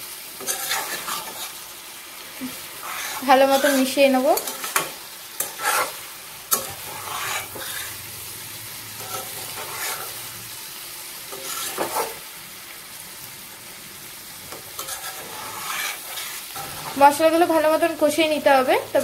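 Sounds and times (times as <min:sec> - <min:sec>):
vegetables sizzling in a pan: 0:00.0 - 0:19.0
metal spatula scraping: 0:00.4 - 0:01.6, 0:02.4 - 0:08.2, 0:08.8 - 0:10.4, 0:11.3 - 0:12.2, 0:14.5 - 0:17.9.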